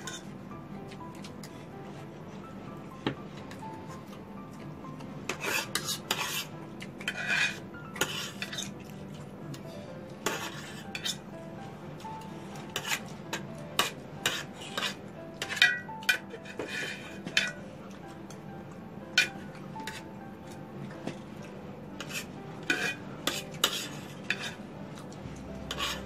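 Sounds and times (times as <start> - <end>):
cutlery scraping metal trays: 5.3 - 8.8, 10.2 - 11.2, 12.6 - 17.6, 22.0 - 24.6, 25.7 - 26.0.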